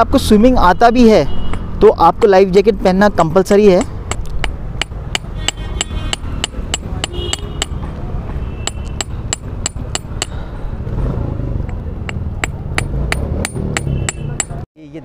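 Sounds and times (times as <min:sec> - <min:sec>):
hand hammer tapping: 0:03.8 - 0:08.0, 0:08.6 - 0:10.4, 0:11.6 - 0:14.6.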